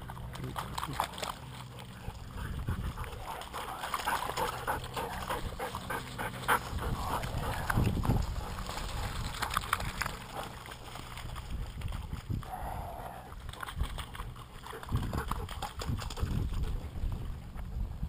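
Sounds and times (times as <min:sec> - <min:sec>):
paws splashing through water: 0:00.0 - 0:18.0
dogs moving about: 0:00.1 - 0:12.2.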